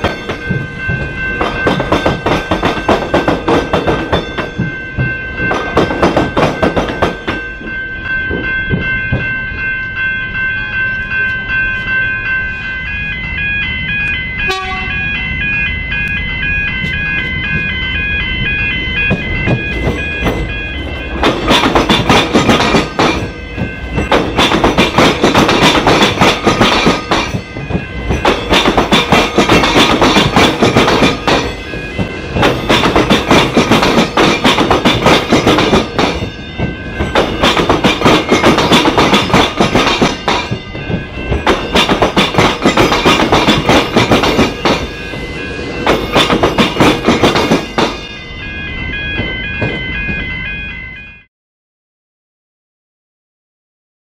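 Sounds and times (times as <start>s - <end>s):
train wheels clattering over rails: 0.0s - 9.6s, 19.0s - 48.2s, 49.0s - 50.4s.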